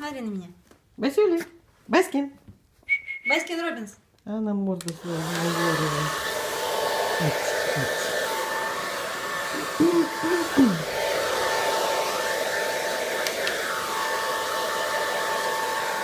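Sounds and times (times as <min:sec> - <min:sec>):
hair dryer running: 0:04.9 - 0:16.0
short voice-like sounds: 0:09.6 - 0:11.0.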